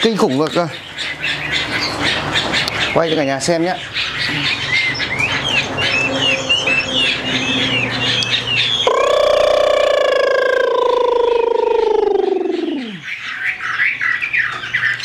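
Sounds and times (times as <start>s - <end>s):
long falling steady tone: 8.9s - 13.0s.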